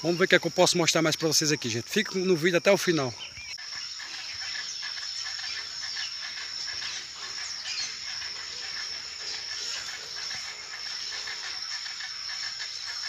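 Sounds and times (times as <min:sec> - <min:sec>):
high-pitched insect drone: 0:00.0 - 0:13.0
bird calls and chirps: 0:02.8 - 0:13.0.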